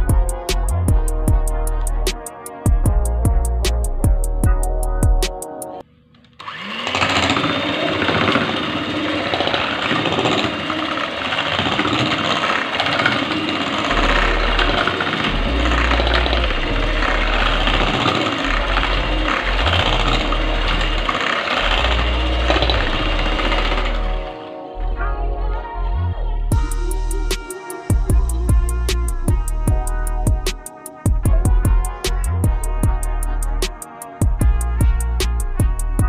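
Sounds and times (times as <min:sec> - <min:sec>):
background music: 0:00.0 - 0:05.9, 0:07.4 - 0:36.0
electric hand mixer whirring: 0:06.2 - 0:24.8, 0:26.5 - 0:31.5.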